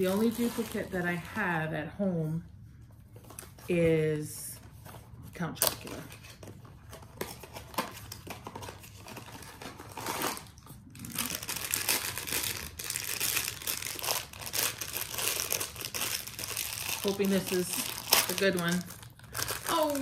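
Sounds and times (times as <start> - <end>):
foil bag crinkling: 0.0 - 1.5, 6.8 - 20.0.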